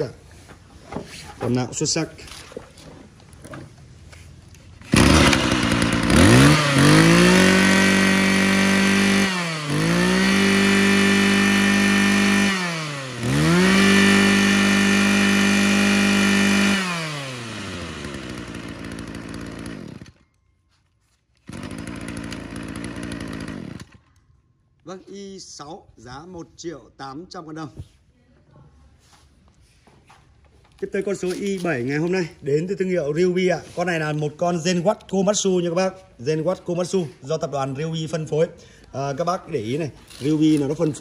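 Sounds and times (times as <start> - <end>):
brush cutter engine revving: 4.8 - 20.2, 21.5 - 24.1, 39.6 - 41.0.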